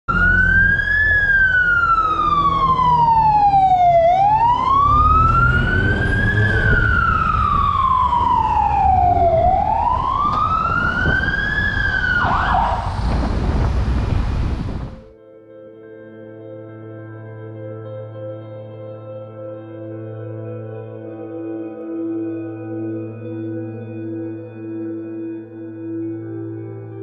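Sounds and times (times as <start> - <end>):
fire engine siren wailing: 0.1 - 15.1.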